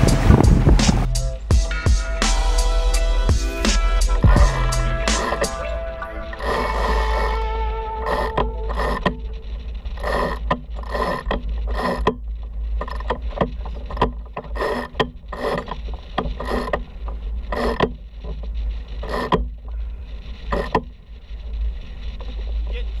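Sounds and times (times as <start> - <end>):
wind rumble on microphone: 0.0 - 2.0
winch pawls ratcheting: 4.0 - 22.8.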